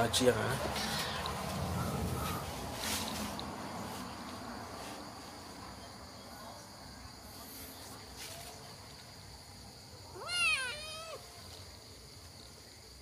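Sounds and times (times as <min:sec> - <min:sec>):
kitten mewing: 0:10.1 - 0:11.2.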